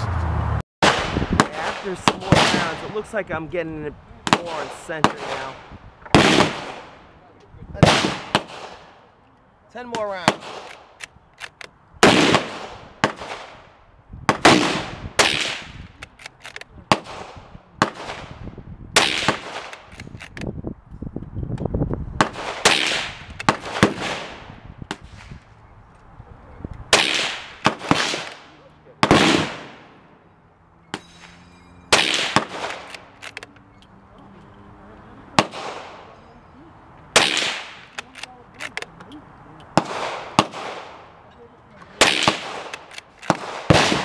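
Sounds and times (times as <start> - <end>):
distant gunshots: 0.8 - 3.0, 4.3 - 7.0, 7.8 - 9.0, 12.0 - 13.7, 14.3 - 15.8, 16.9 - 18.4, 19.0 - 19.9, 22.2 - 25.4, 26.9 - 30.1, 30.9 - 33.2, 35.3 - 36.2, 37.1 - 38.0, 39.7 - 41.1, 42.0 - 44.0
rifle shots echoing: 0.8 - 3.0, 4.3 - 7.1, 7.8 - 9.0, 10.2 - 11.0, 12.0 - 13.7, 14.3 - 15.8, 16.9 - 18.4, 19.0 - 20.0, 22.2 - 25.3, 26.9 - 30.1, 31.9 - 33.4, 35.4 - 36.2, 37.1 - 38.3, 39.7 - 41.1, 42.0 - 44.0.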